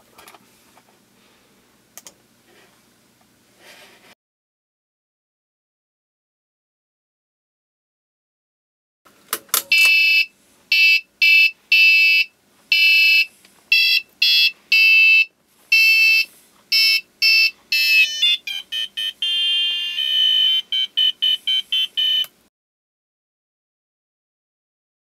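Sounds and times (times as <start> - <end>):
electronic beep tune: 15.8 - 22.3.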